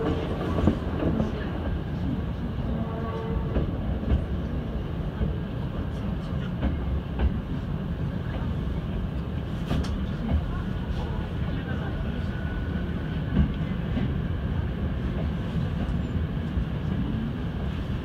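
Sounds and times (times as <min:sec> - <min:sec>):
train wheels rumbling on rail: 0:00.0 - 0:18.0.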